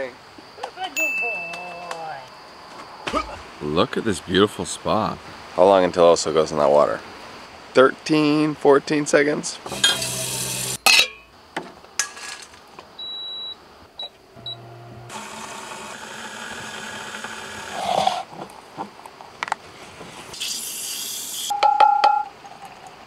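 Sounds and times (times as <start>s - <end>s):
steady hiss: 0.0s - 12.7s, 19.0s - 21.5s.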